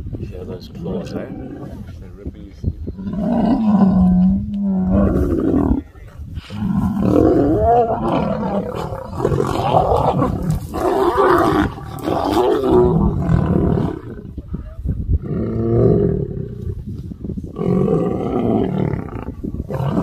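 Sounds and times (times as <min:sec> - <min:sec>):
lions roaring: 0:03.0 - 0:14.4, 0:17.6 - 0:20.0.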